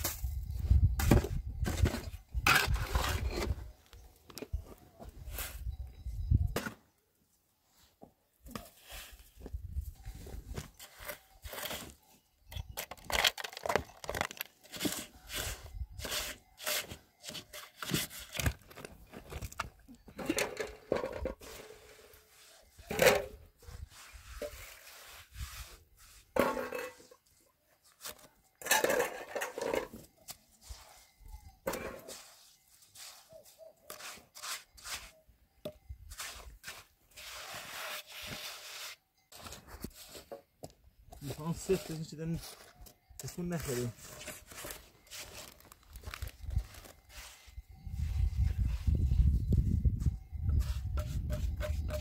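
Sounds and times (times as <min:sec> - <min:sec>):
trowel scraping mortar: 0:01.0 - 0:03.7, 0:10.4 - 0:19.6, 0:20.2 - 0:27.3, 0:31.7 - 0:35.3, 0:36.0 - 0:40.4, 0:41.2 - 0:45.6, 0:50.4 - 0:52.0.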